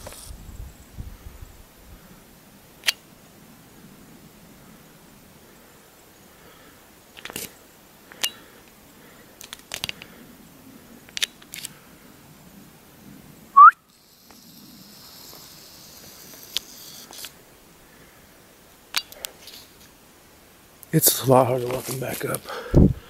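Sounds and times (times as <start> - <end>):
footsteps snapping twigs: 9.4 - 10.1.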